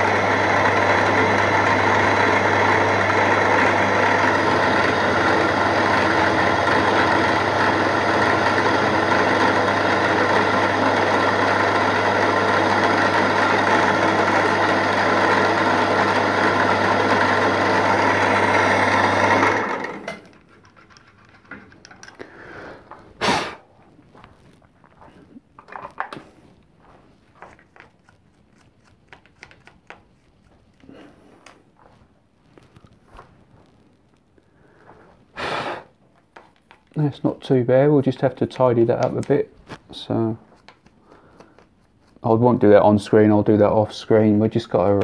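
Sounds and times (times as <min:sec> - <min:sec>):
milling machine motor hum: 0:00.0 - 0:20.4
end mill cutting metal: 0:00.0 - 0:20.5.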